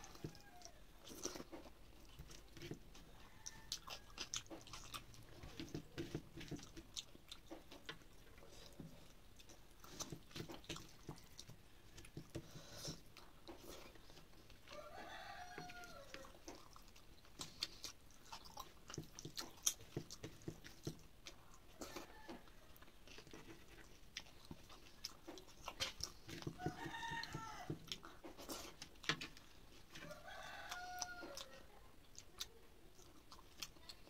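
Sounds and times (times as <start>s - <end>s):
chewing and sticky clicks: 0.0s - 34.0s
rooster crowing: 3.1s - 4.4s, 14.7s - 16.4s, 26.6s - 27.8s, 30.0s - 31.6s.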